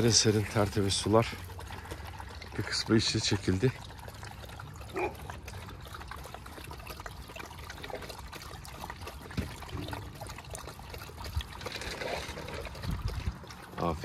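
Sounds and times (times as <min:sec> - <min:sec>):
water trickling into bowl: 0:00.0 - 0:14.0.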